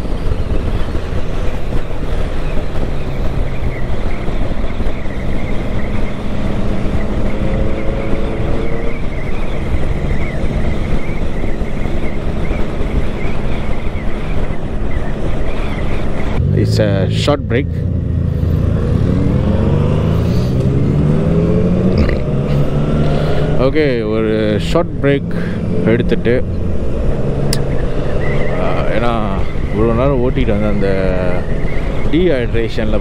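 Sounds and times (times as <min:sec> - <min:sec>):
motorcycle engine running: 0:00.0 - 0:33.0
wind rush on microphone: 0:00.0 - 0:33.0.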